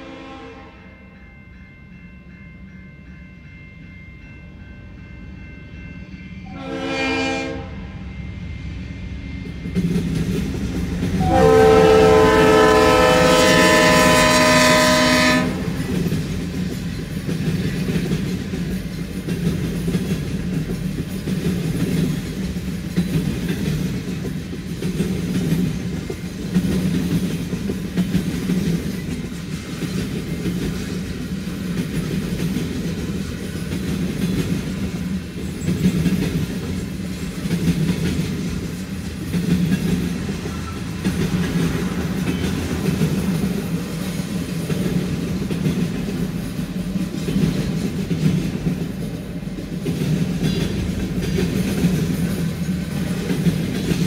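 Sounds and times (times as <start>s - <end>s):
train horn blasts: 0.0s - 1.1s, 6.4s - 8.1s, 11.2s - 15.9s
freight cars rumbling on rails: 8.8s - 54.0s.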